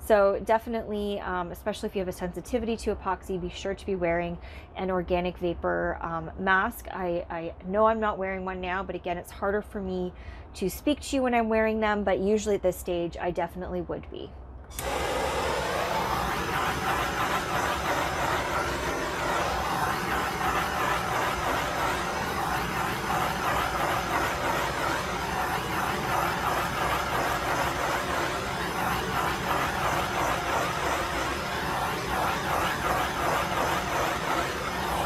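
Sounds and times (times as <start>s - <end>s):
propane torch hissing: 14.7s - 35.0s.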